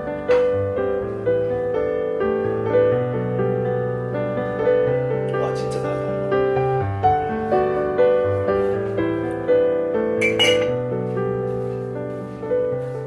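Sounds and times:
slow solo piano: 0.0s - 13.0s
mug being raised: 10.2s - 10.8s.

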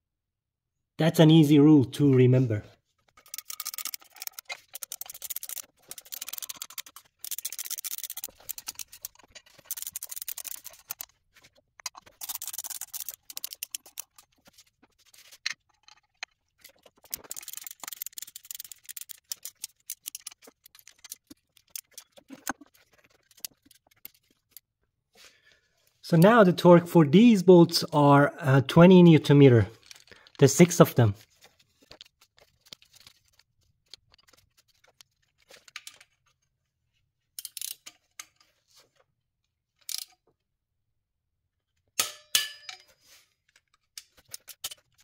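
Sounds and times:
hand ratchet clicking: 3.2s - 11.1s, 11.8s - 14.3s, 17.0s - 22.5s.

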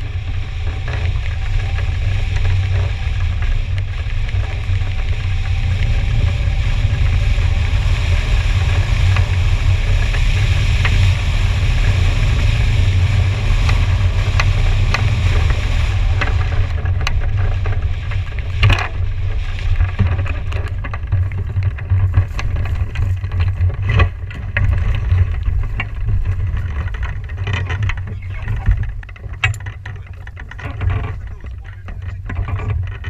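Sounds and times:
wind buffeting a microphone: 0.0s - 33.0s
knocks and rattles: 8.6s - 33.0s.

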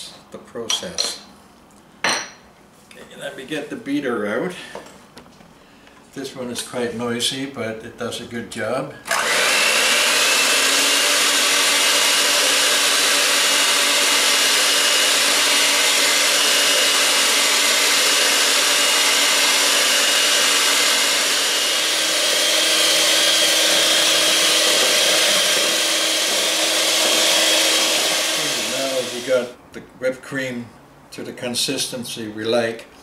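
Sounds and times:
electric mixer whipping cream: 9.1s - 29.5s.

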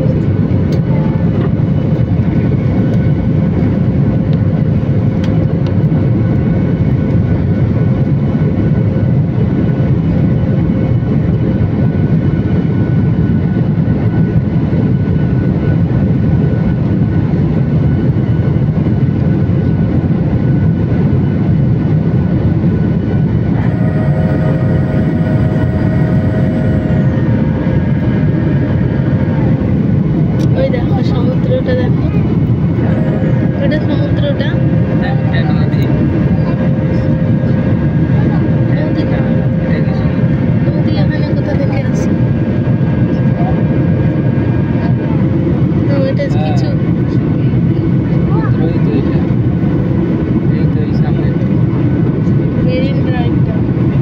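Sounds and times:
jet engine and airflow noise: 0.0s - 54.0s
high whining tones: 22.5s - 46.7s.

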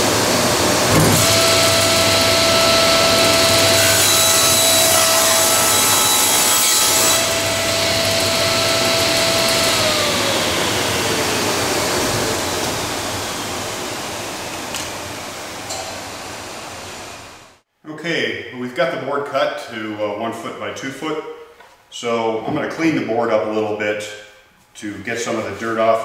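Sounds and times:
table saw cutting wood: 0.0s - 15.2s
saw blade whining: 0.6s - 13.8s.

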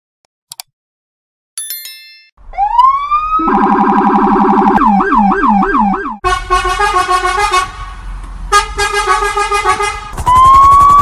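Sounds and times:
electronic siren wailing and yelping: 2.5s - 6.2s.

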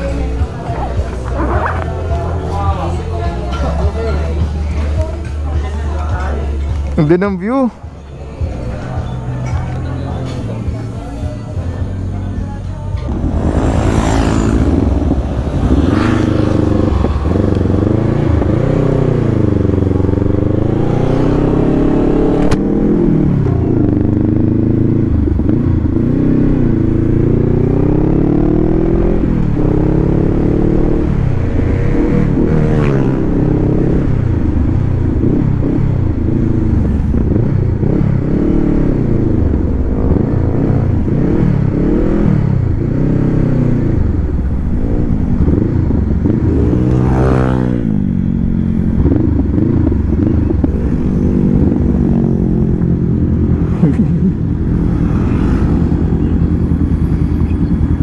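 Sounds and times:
motorcycle engine revving: 12.9s - 58.0s.

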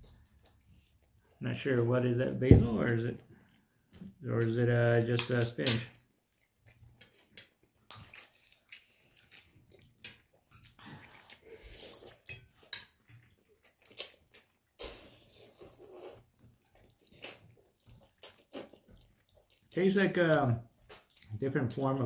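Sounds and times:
chewing: 0.1s - 1.4s, 6.3s - 21.4s.

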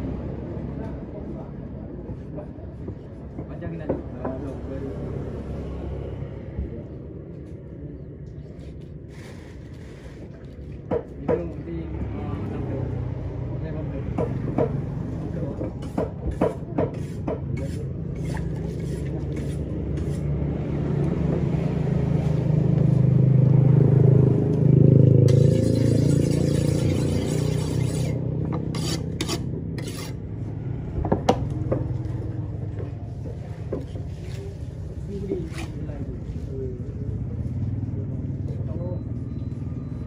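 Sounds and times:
knife chopping on wooden block: 15.8s - 17.8s.

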